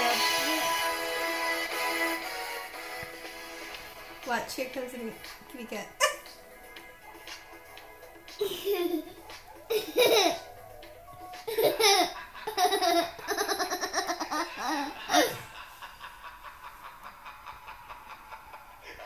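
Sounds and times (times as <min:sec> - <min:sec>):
toddler laughing: 0:08.4 - 0:15.6.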